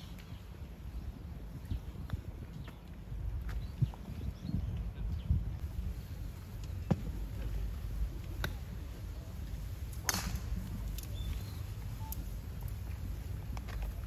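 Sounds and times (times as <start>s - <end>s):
low outdoor rumble: 0.0s - 14.0s
golf clubs striking balls: 8.1s - 11.4s.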